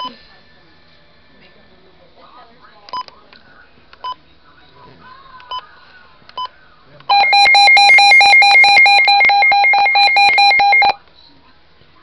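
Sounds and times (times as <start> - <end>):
radio button beeps: 7.1 - 11.0
rapidly pulsing alarm beep: 7.1 - 11.0.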